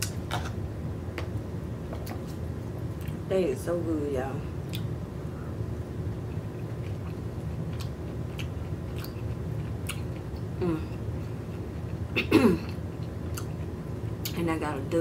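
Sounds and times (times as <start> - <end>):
steady low hum: 0.0 - 15.0
person chewing: 6.3 - 10.6, 11.2 - 14.3
person humming: 10.6 - 11.0.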